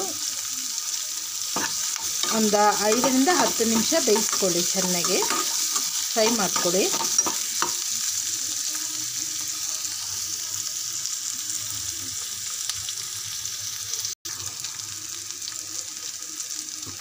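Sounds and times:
onions sizzling in hot oil: 0.0 - 17.0.

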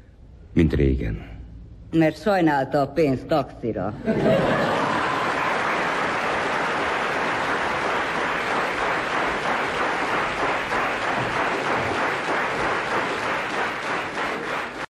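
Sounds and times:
audience applauding: 4.3 - 14.9.

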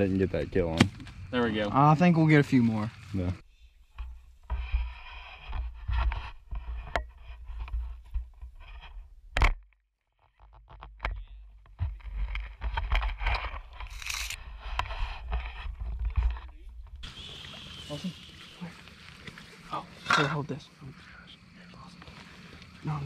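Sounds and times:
wet grass brushing and scraping: 17.0 - 20.1.

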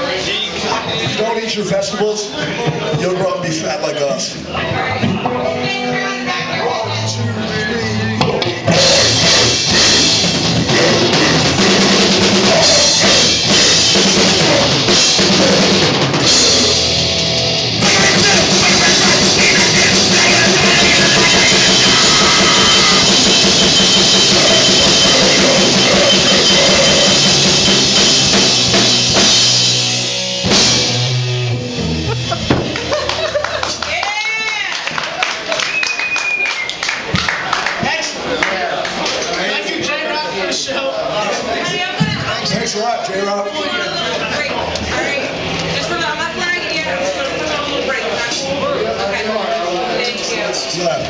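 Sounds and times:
punk rock band playing: 4.4 - 34.8
drum kit: 8.1 - 34.3.

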